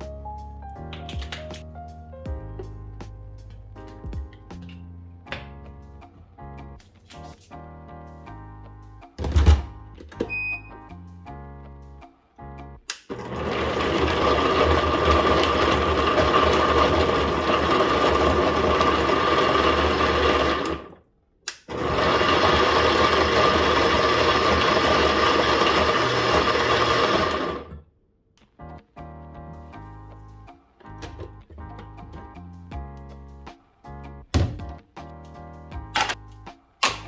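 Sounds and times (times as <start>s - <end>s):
blender motor grinding: 13.1s - 21.0s, 21.7s - 27.7s.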